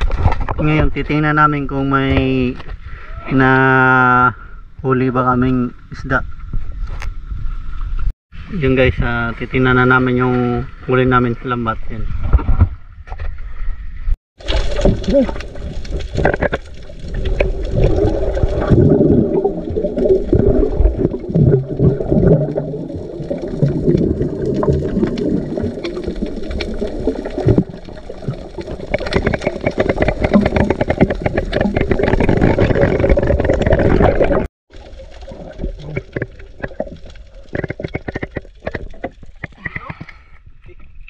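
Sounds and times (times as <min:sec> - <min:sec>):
muffled underwater water movement: 0:06.4 - 0:41.0
small crackling clicks: 0:22.8 - 0:40.2.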